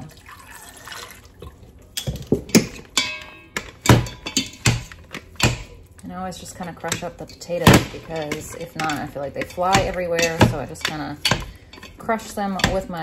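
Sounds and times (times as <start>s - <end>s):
milk pouring into pot: 0.0s - 1.8s
metal beaters knocking against pot: 2.0s - 5.8s, 6.4s - 13.0s.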